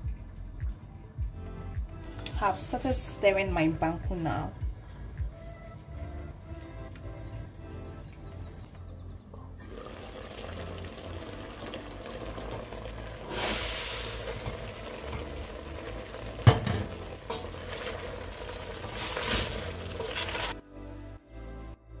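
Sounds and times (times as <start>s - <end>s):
chicken simmering in pot: 9.6s - 20.5s.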